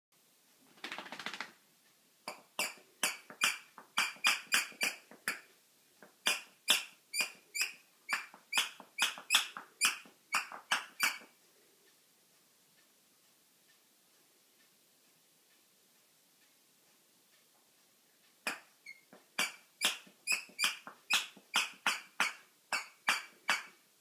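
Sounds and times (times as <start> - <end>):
squeaker toy squeaking: 2.3 - 5.5, 6.2 - 11.3, 18.4 - 23.8.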